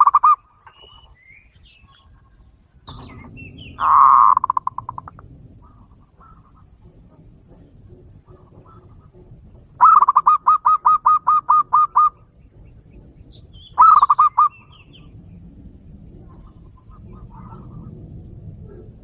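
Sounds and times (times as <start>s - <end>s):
dove cooing: 0.0s - 0.4s, 2.9s - 15.3s, 16.0s - 19.0s.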